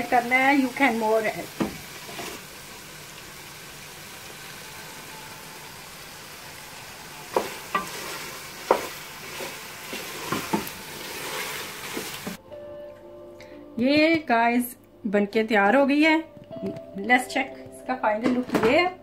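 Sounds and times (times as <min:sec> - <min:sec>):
curry sizzling in a pot: 0:00.0 - 0:12.4.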